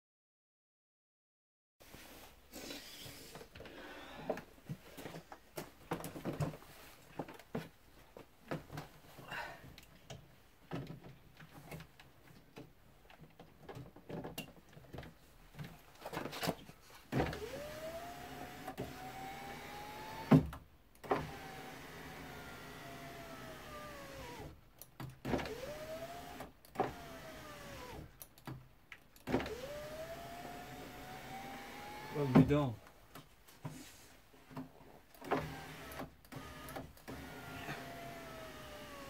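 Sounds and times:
power window motor whining: 17.2 - 24.6, 25.3 - 28.1, 29.3 - 32.3, 35.2 - 39.0.

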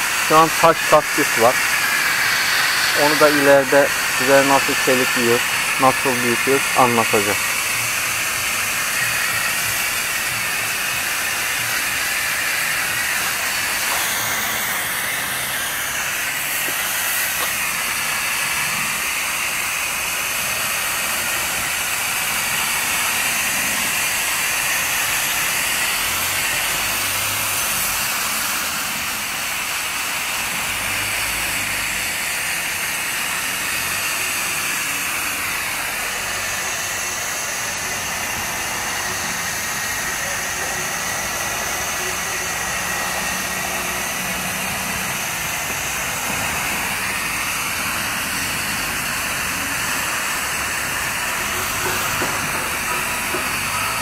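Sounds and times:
hose spray nozzle hissing: 0.0 - 28.8.

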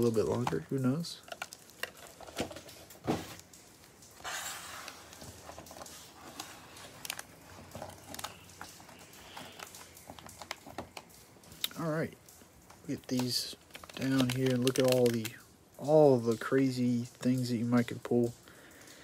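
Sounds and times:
cellophane crinkling: 0.0 - 12.0, 12.6 - 15.5
cellophane rustle: 0.0 - 12.0, 12.8 - 18.0
light taps of card packs: 12.7 - 15.4.

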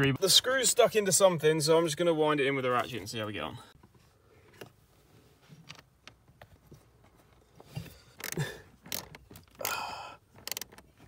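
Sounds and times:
socket ratchet clicking: 8.2 - 9.8, 10.4 - 10.8.

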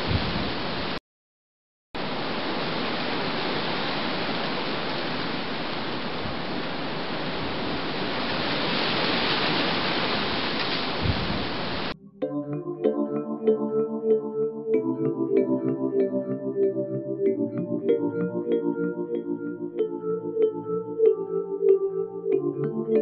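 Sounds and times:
rough sea: 0.0 - 1.0, 2.0 - 12.0
strong wind: 0.0 - 1.0, 2.0 - 12.0.

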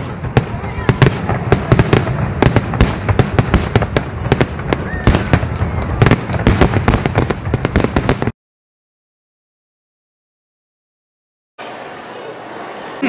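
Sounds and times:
fireworks bangs and crackling: 0.0 - 8.4.

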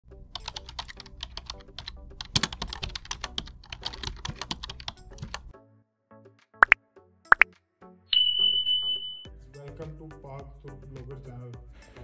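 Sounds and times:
rapid keyboard typing: 0.3 - 5.5.

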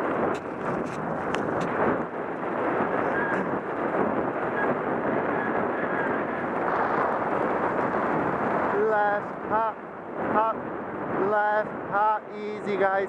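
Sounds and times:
wind on microphone: 0.0 - 13.0
bicycle rolling over packed snow: 0.2 - 4.2.

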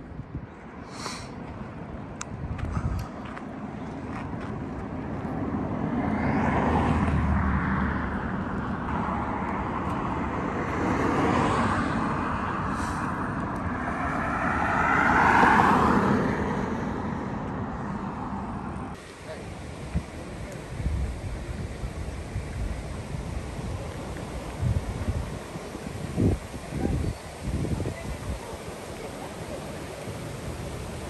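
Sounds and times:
cars passing on road: 0.0 - 31.0.

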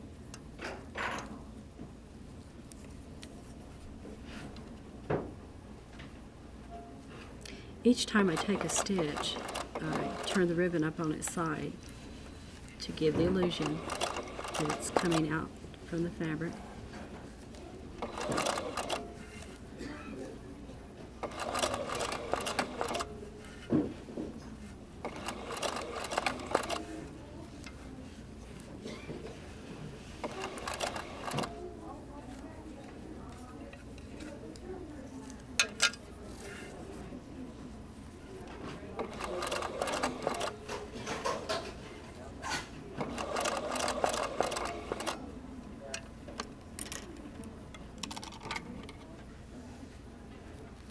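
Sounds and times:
sewing machine stitching: 8.2 - 10.4, 13.2 - 15.4, 18.0 - 19.1, 21.2 - 23.1, 25.0 - 26.9, 30.2 - 31.5, 39.0 - 40.6, 43.0 - 45.2.

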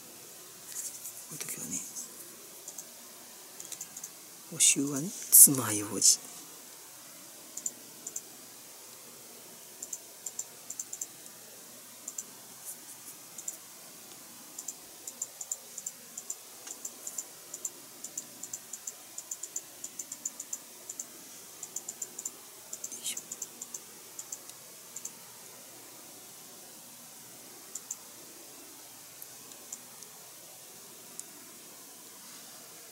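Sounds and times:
plastic model parts clicking: 3.6 - 4.1.

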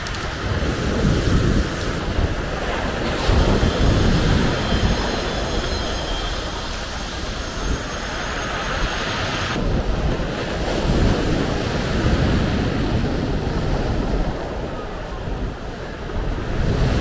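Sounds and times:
surf breaking on pebble beach: 0.0 - 13.1
wind buffeting microphone: 0.0 - 17.0.

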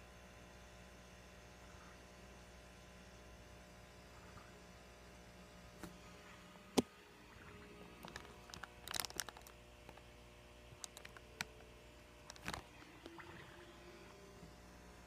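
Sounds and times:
faint steady hum: 0.0 - 15.0
phone handling clicks and rubbing: 12.2 - 12.7.

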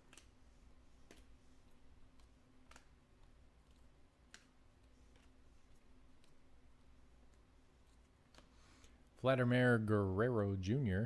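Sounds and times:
cards clicking: 0.0 - 0.4, 1.0 - 6.4.

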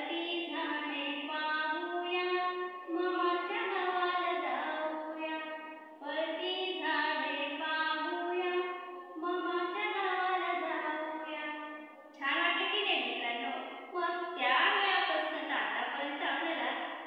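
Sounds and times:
woman singing unaccompanied: 0.0 - 16.7.

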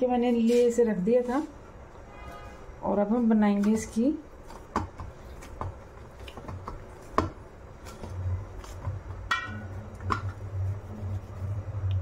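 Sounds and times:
low steady hum: 0.0 - 12.0
hands tapping dough on steel plate: 4.5 - 7.4.

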